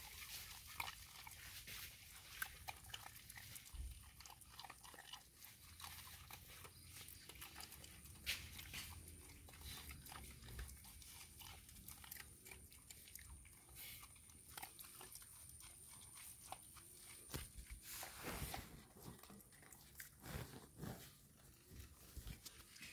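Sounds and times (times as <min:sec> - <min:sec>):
dogs crunching dry kibble: 0:00.0 - 0:22.9
rustling: 0:15.6 - 0:22.9.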